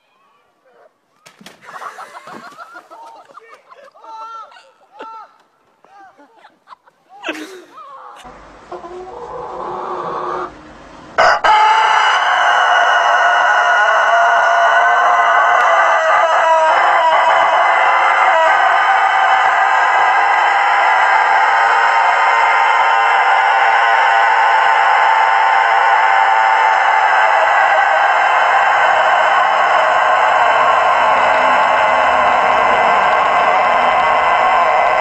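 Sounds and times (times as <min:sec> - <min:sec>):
rooster crowing: 0:11.2 - 0:35.0.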